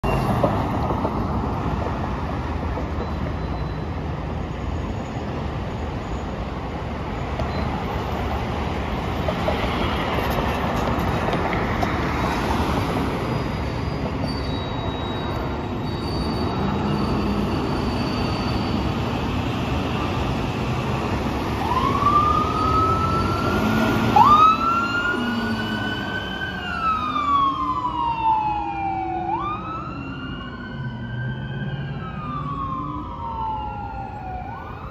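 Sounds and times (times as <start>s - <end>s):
fire engines rumbling: 0.0s - 34.9s
road noise: 0.0s - 34.9s
emergency siren wailing: 16.6s - 34.9s.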